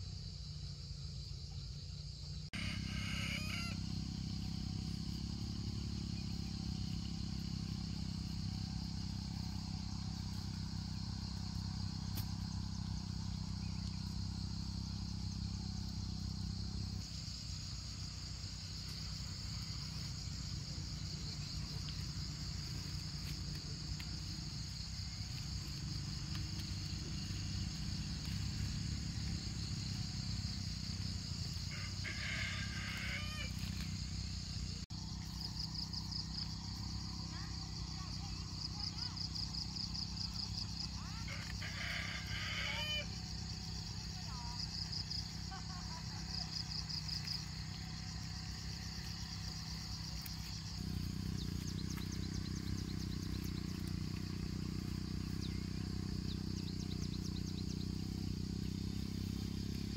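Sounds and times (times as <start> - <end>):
insects buzzing: 0.0 - 59.9
small engine droning: 0.0 - 59.9
rooster crowing: 2.6 - 4.4, 31.6 - 33.8, 41.0 - 43.4.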